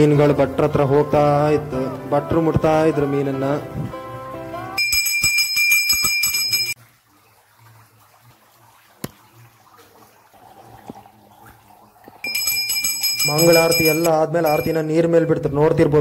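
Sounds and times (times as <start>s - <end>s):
hand bell ringing rapidly: 4.8s - 6.8s, 12.2s - 15.2s
faint water sounds: 6.2s - 16.0s.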